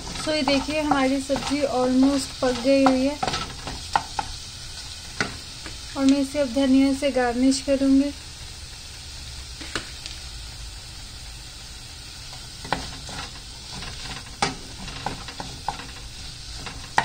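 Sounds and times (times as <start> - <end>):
spatula scraping a pan: 0.0 - 5.5, 12.3 - 17.0
soft steady sizzle: 0.0 - 17.0.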